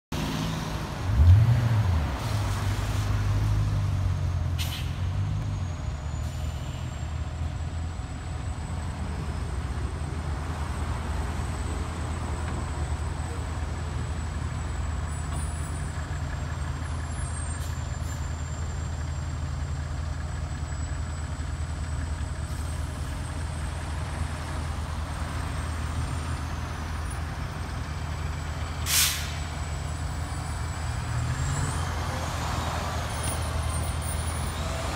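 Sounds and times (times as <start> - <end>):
air brake hiss: 4.6 - 5.0, 6.2 - 7.1, 28.8 - 29.5
diesel engine idling: 5.2 - 34.9.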